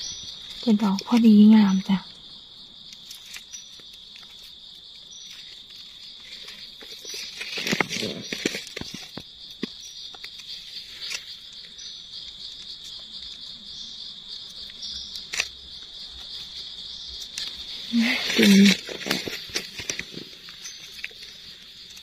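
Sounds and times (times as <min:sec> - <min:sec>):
insects droning: 0:00.0 - 0:22.0
dry leaves rustling: 0:03.0 - 0:11.6, 0:15.1 - 0:22.0.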